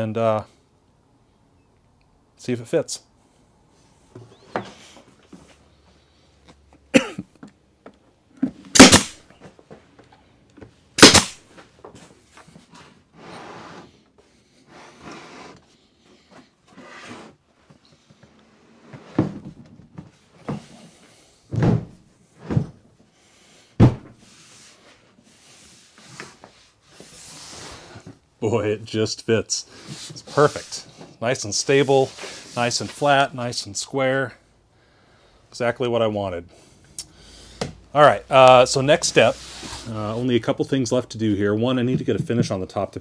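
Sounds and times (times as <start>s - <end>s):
power stapler firing: 8.7s - 9.2s, 11.0s - 11.4s
wood scraping: 12.3s - 14.0s, 14.6s - 19.5s
heavy wooden thumps: 21.5s - 22.8s, 23.8s - 24.2s.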